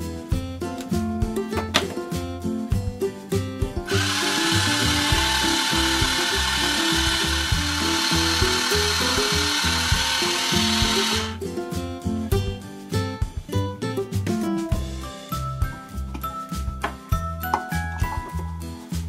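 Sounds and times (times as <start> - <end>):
background music: 0.0 - 19.0
blender whirring: 3.9 - 11.4.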